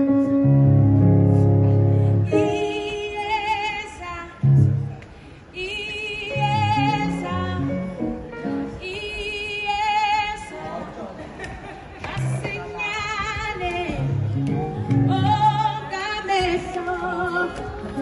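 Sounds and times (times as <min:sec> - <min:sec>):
keyboard chords: 0:00.0 - 0:03.7, 0:04.4 - 0:05.0, 0:06.2 - 0:08.8, 0:13.8 - 0:15.9
women singing with vibrato: 0:02.2 - 0:04.7, 0:05.5 - 0:07.9, 0:08.7 - 0:10.8, 0:12.1 - 0:18.0
deep bass: 0:14.0 - 0:15.7.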